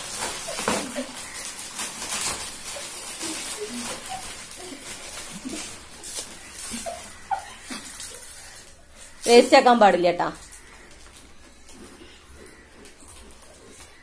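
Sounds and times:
packets torn open: 0:00.0 - 0:09.2
chip packets crinkling: 0:00.0 - 0:14.0.

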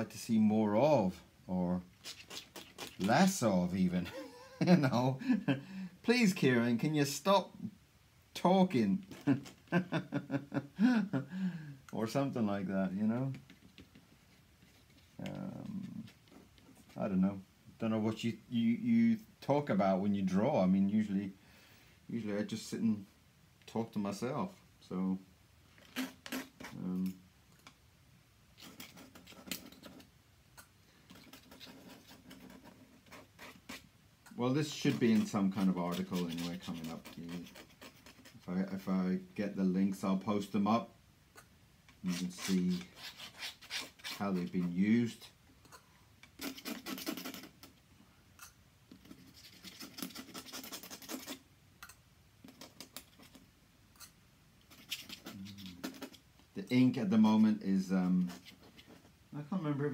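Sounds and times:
pen scratching on paper: 0:31.1 - 0:33.9, 0:34.7 - 0:38.4, 0:46.4 - 0:47.6, 0:49.0 - 0:51.4, 0:54.7 - 0:56.2.

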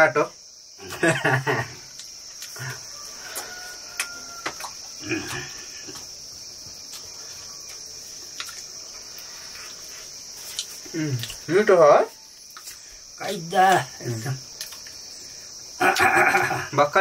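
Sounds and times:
insects chorus: 0:00.0 - 0:17.0.

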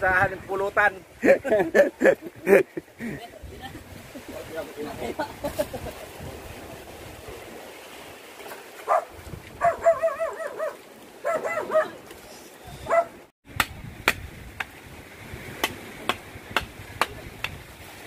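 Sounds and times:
dog whining and yelping: 0:09.6 - 0:11.9
blade chopping fish on wood: 0:13.5 - 0:14.7, 0:15.5 - 0:17.6.

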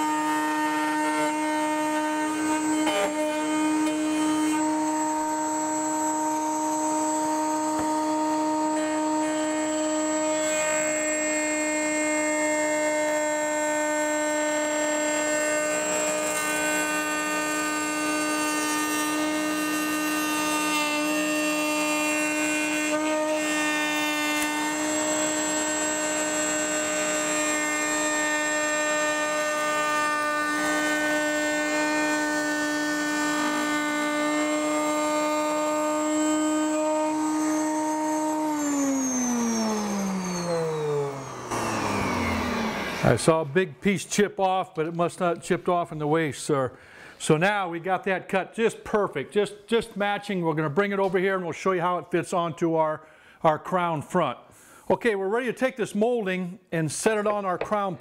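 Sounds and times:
router high whine cutting wood: 0:00.0 - 0:43.6.

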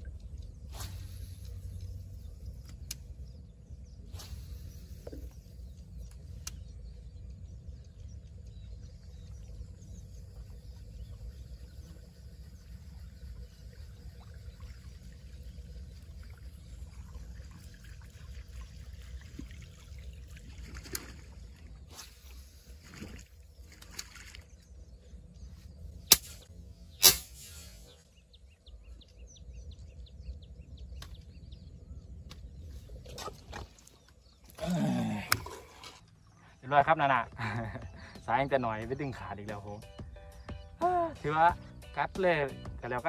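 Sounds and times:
faint trickling water: 0:00.0 - 0:04.1, 0:05.0 - 0:25.5
low rumble: 0:00.0 - 0:23.7.

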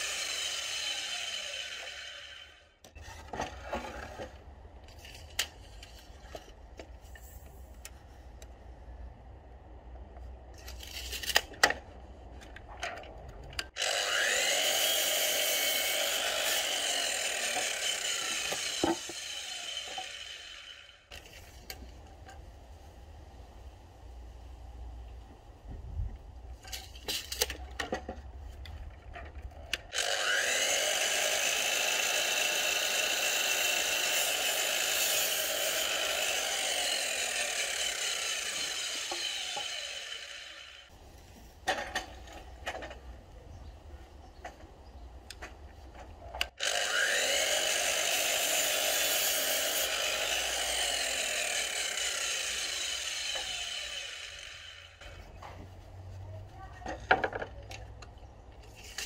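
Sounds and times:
mitre saw cutting timber: 0:00.0 - 0:04.3, 0:13.7 - 0:21.4, 0:29.8 - 0:41.0, 0:46.4 - 0:55.4.

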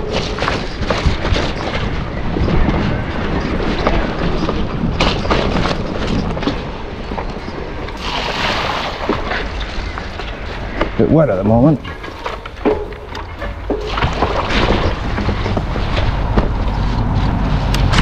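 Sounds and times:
bike tyres on rough trail: 0:00.0 - 0:18.0
wind rumbling on microphone: 0:00.0 - 0:18.0.

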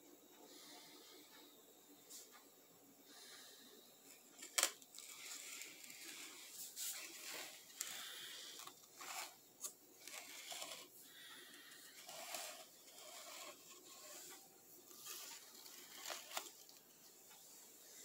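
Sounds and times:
leaves rustling against phone: 0:04.4 - 0:10.9, 0:11.8 - 0:17.0.

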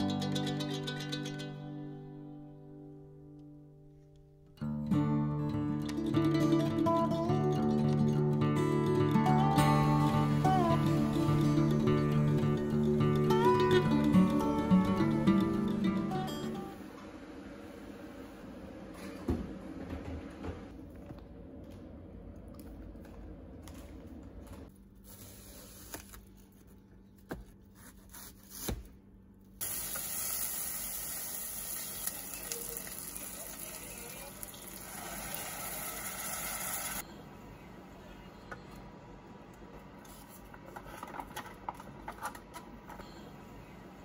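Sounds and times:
onions sizzling in pot: 0:29.6 - 0:37.0.

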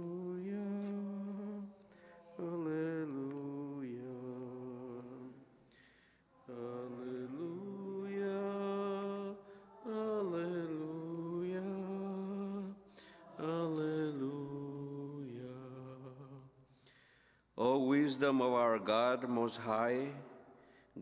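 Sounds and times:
man chanting unaccompanied: 0:17.6 - 0:20.4.

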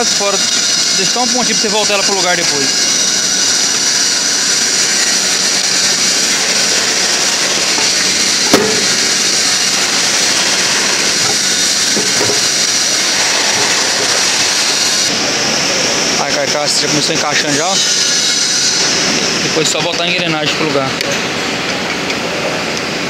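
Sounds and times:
loud workshop hiss: 0:00.0 - 0:23.0
sharp metallic knock: 0:08.5 - 0:09.2.

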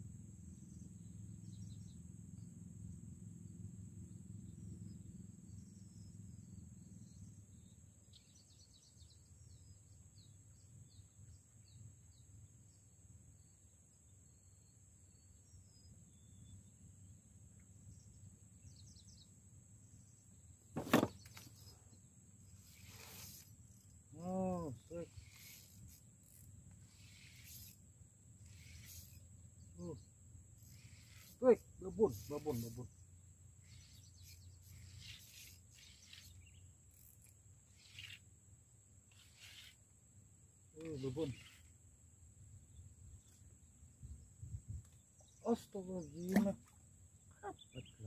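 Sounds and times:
faint bird chirps: 0:00.5 - 0:02.5, 0:04.3 - 0:27.8, 0:28.4 - 0:38.4, 0:39.0 - 0:40.0, 0:40.6 - 0:41.8, 0:42.4 - 0:48.0
fishing rod knock and swish: 0:20.8 - 0:21.6, 0:46.2 - 0:46.7
soft hissing swishes: 0:22.6 - 0:23.6.

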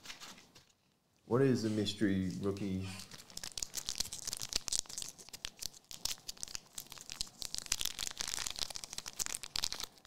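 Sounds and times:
plastic wrappers crinkling: 0:02.3 - 0:10.0.

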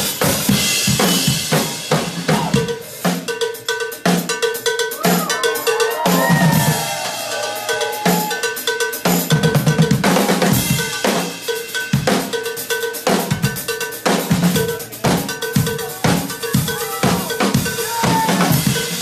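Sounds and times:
drum kit playing: 0:00.0 - 0:19.0.

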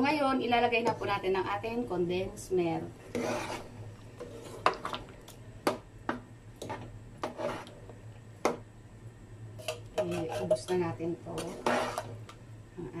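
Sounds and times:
metal spoon scraping in tin can: 0:03.1 - 0:04.8, 0:07.2 - 0:07.7, 0:09.6 - 0:10.7, 0:11.3 - 0:12.2.

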